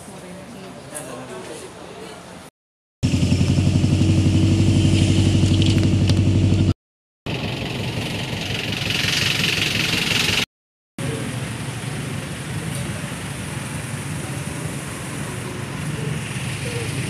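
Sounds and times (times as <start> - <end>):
van engine droning in cabin: 3.0 - 10.4.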